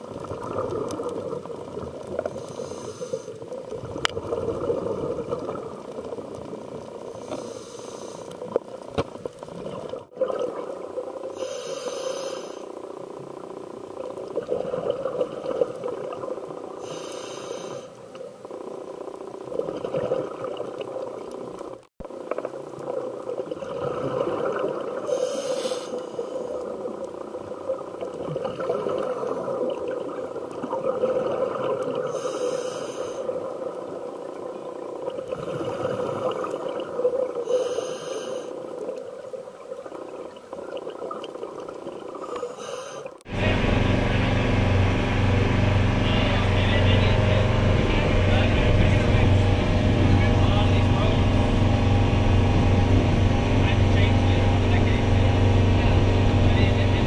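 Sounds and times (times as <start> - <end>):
bubbling exhale underwater: 0.0 - 6.2, 9.5 - 11.6, 19.4 - 21.0, 22.6 - 26.8, 35.1 - 38.7
regulator hissing inhale: 2.2 - 3.4, 7.1 - 8.5, 11.3 - 12.8, 16.8 - 18.0, 25.0 - 26.6, 32.1 - 33.3, 37.4 - 38.6, 42.2 - 43.2.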